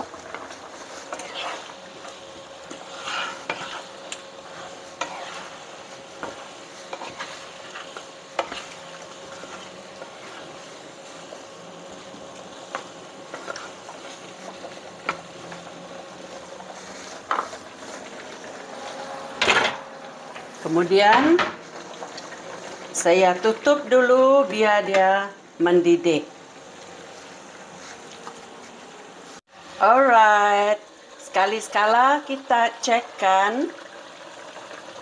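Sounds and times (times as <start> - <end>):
sauce sizzling: 0.0 - 35.0
spatula scraping a pan: 0.3 - 11.3, 12.7 - 15.6, 16.6 - 21.3.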